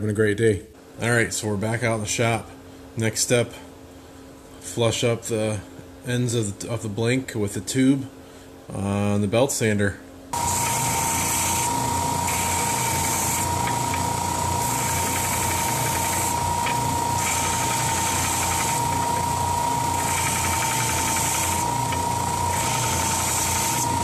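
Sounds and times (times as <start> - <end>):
belt sander whining: 10.4 - 24.0
wood grinding on sanding belt: 10.4 - 24.0.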